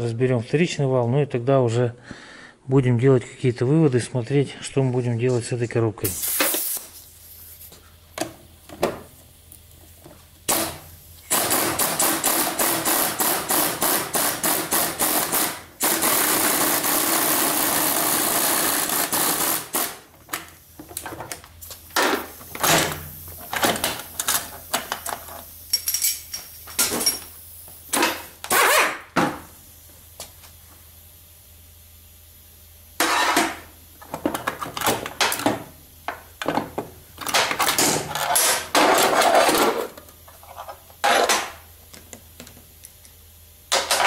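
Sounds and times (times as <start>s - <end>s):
power tool rattling: 10.5s - 20.0s.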